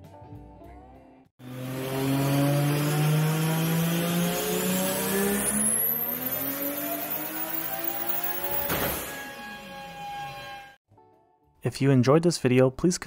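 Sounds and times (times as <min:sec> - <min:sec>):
car engine revving hard: 0:01.4 - 0:09.3
high turbo whine: 0:01.4 - 0:10.8.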